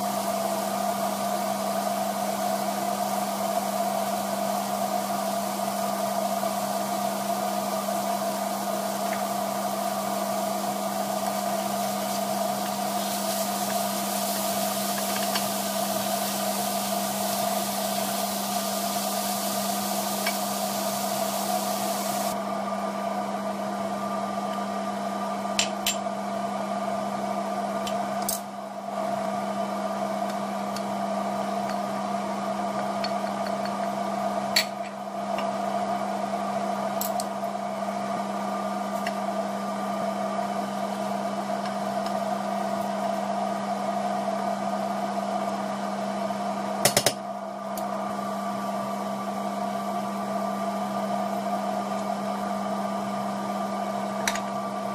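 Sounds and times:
kitchen fan humming: 0.0 - 54.9.

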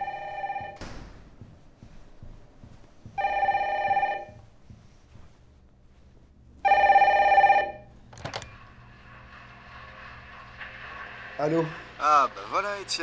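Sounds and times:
electronic telephone ringing: 0.0 - 0.8, 3.2 - 4.4, 6.6 - 7.9.

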